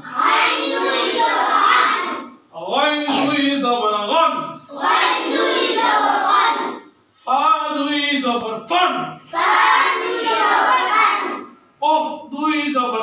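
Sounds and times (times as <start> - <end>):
boys chanting in unison: 0.0 - 2.4, 4.4 - 6.9, 9.3 - 11.5
teacher's voice leading: 0.0 - 13.0.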